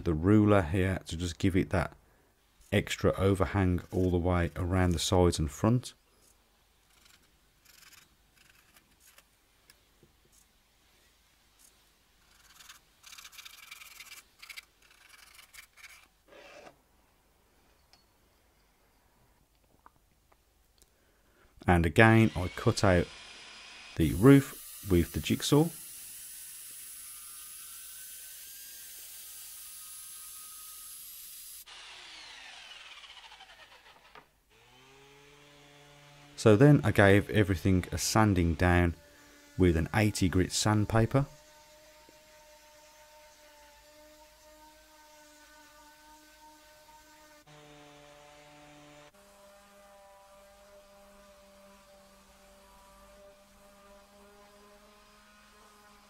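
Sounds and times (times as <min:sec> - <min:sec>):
jigsaw cutting wood: 0:12.4 - 0:16.8, 0:22.0 - 0:36.4, 0:41.3 - 0:56.0
electric sander humming: 0:22.0 - 0:36.4.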